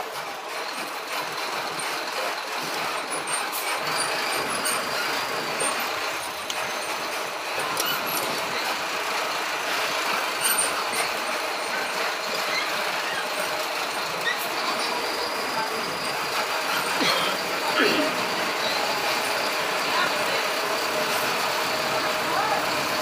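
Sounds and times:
truck running on rough street: 0.0 - 23.0
vehicle body squeaks and clicks: 2.8 - 7.0, 7.6 - 8.8, 10.1 - 17.0.

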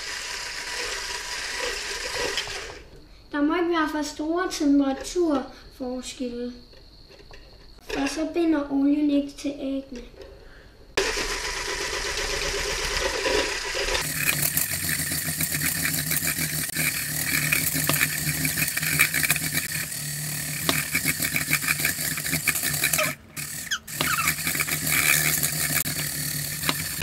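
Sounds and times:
hand blender whisking: 0.0 - 2.8, 11.0 - 27.0.

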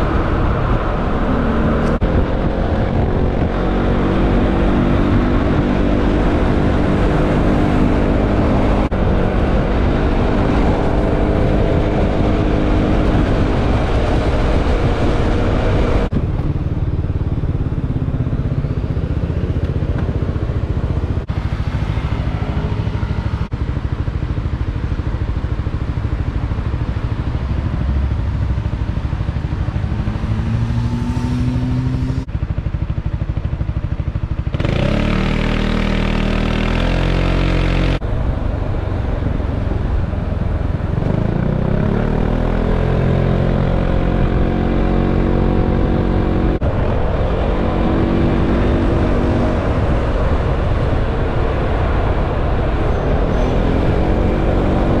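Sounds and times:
road noise rumble: 0.0 - 55.0
scooter engine accelerating: 26.9 - 38.1.

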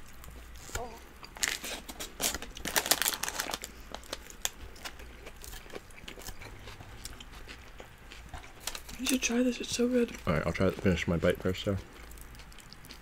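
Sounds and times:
close-up chewing: 0.0 - 13.0
paper wrappers crinkling: 0.6 - 5.6, 8.6 - 9.4.

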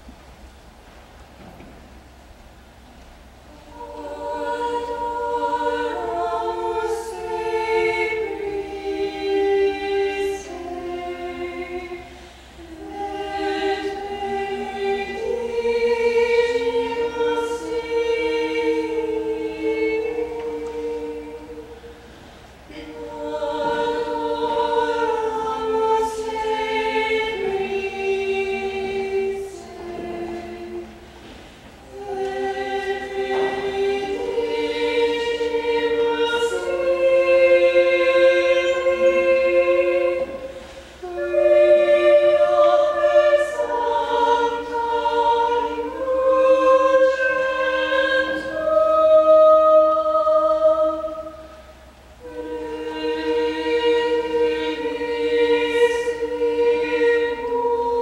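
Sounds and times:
choir singing in harmony: 3.4 - 58.0.

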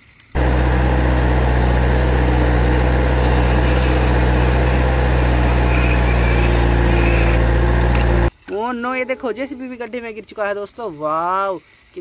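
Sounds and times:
heavy machine engine drone: 0.4 - 8.3.

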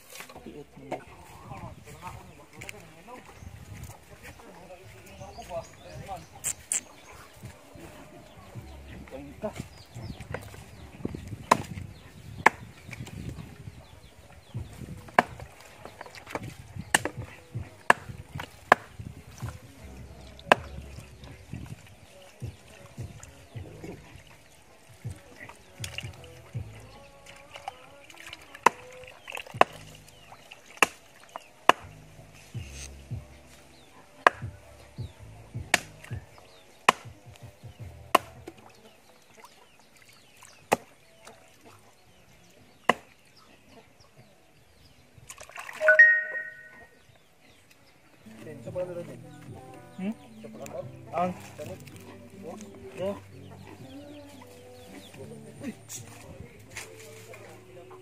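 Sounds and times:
machete chopping on wooden block: 11.4 - 11.8, 12.4 - 12.7, 16.3 - 17.2, 17.9 - 19.0, 30.8 - 31.0, 36.8 - 37.2, 38.1 - 38.3, 42.9 - 43.1.

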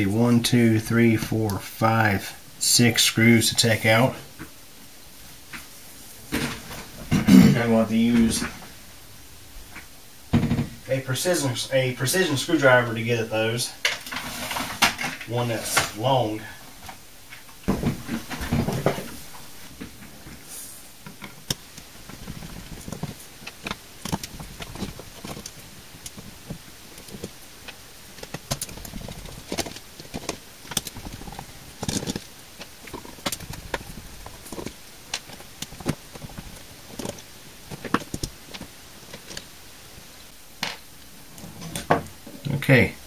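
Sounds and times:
hands shifting plastic case: 21.1 - 39.5.

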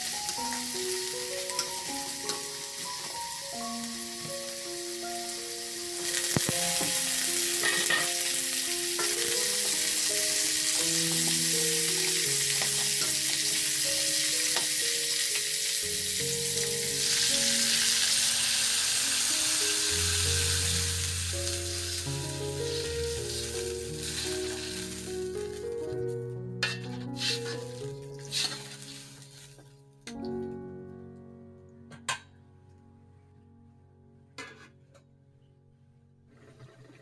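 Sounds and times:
food sizzling in hot oil: 0.0 - 25.9, 26.6 - 29.6
soft background music: 0.0 - 36.4.

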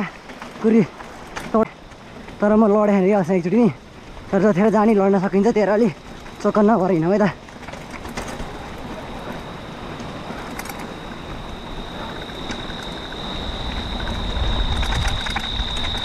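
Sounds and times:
bicycle clicks and rattles: 0.0 - 2.7, 4.0 - 16.0
bicycle tyres on dirt: 0.0 - 16.0
wind rumble on microphone: 0.0 - 16.0
steady high whine: 8.0 - 16.0.

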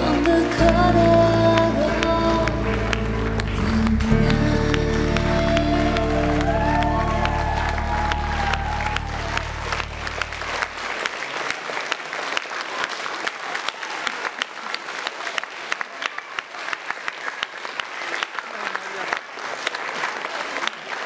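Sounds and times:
audience applauding: 0.0 - 21.0
music final sustained chord: 5.0 - 10.7.

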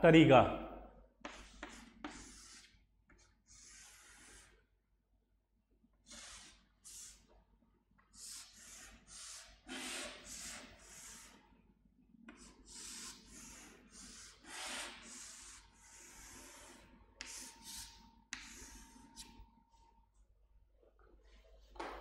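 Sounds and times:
chalk scraping on chalkboard: 1.2 - 4.8, 6.0 - 7.4, 8.1 - 11.6, 12.3 - 19.4.

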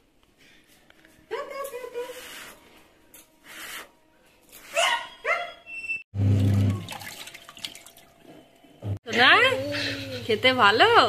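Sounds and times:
washing machine humming: 6.2 - 9.4
water churning: 6.3 - 8.2.

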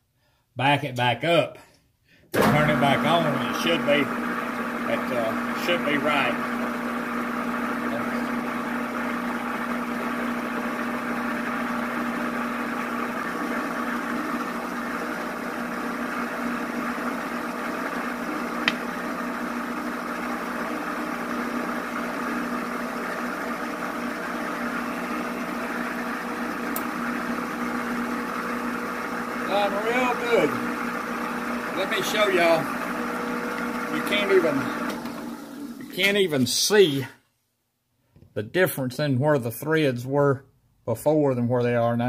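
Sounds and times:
metal lathe running: 2.4 - 36.1.

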